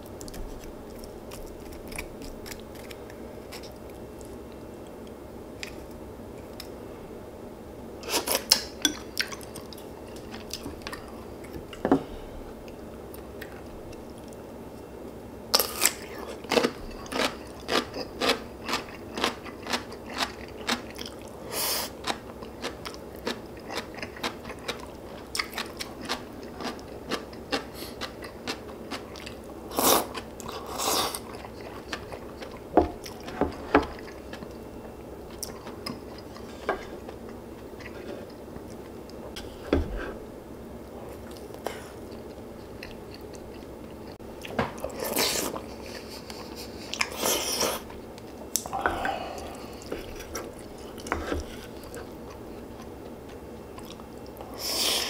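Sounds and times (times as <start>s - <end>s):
close chewing crunches: 0.0s - 4.4s, 15.6s - 34.6s.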